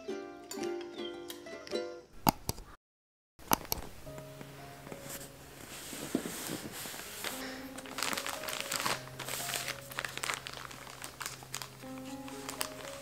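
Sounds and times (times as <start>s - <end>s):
soft background music: 0.0s - 2.1s, 3.8s - 13.0s
plastic mailer bags crinkling: 5.9s - 13.0s.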